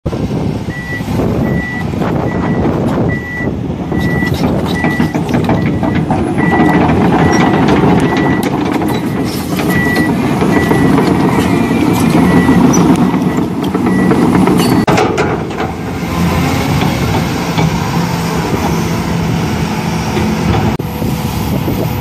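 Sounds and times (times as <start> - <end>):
high electronic warning beep: 0.7 - 14.9.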